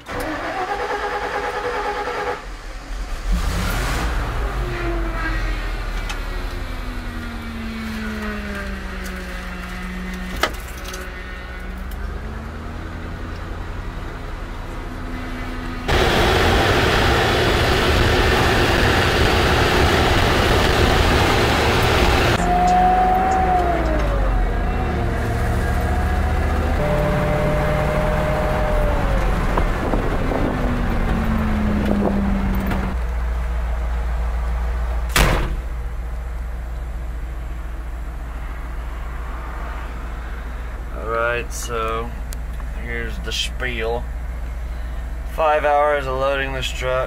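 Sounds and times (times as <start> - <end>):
truck road and engine noise: 0.0 - 47.0
whines falling in pitch: 15.9 - 24.9, 26.6 - 29.8.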